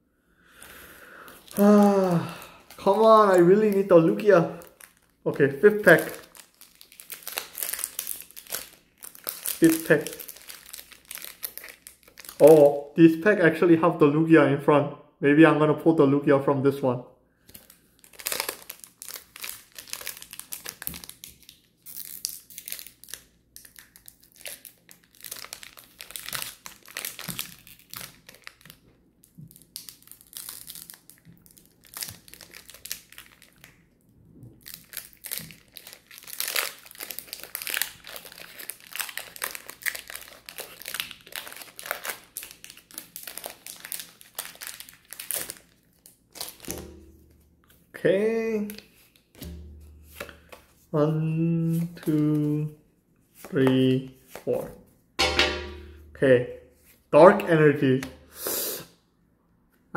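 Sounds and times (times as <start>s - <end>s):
foil wrapper crinkling and tearing: 1.2s - 12.8s, 17.4s - 33.8s, 34.6s - 47.8s, 48.6s - 50.8s.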